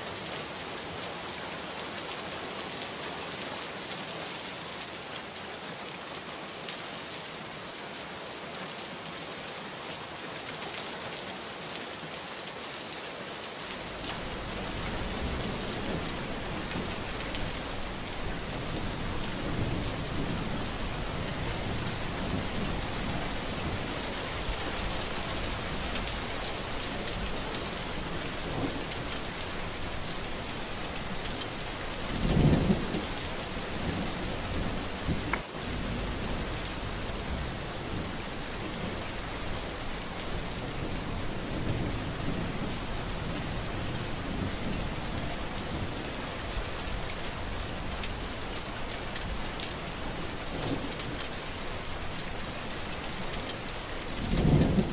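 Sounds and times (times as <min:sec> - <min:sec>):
heavy rain falling: 0:00.0 - 0:54.9
thunder rumbling: 0:13.9 - 0:48.2, 0:53.9 - 0:54.9.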